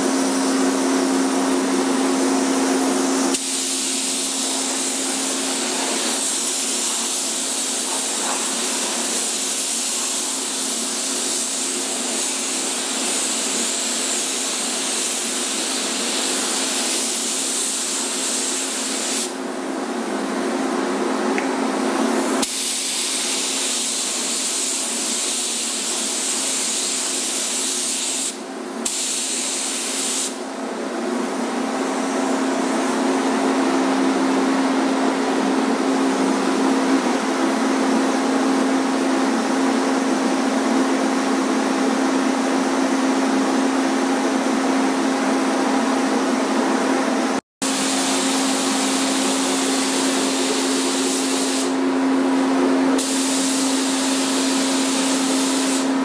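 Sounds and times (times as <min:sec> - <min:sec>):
spray gun hissing: 0:03.2 - 0:19.4, 0:22.4 - 0:30.4, 0:47.7 - 0:51.9, 0:53.0 - 0:56.0.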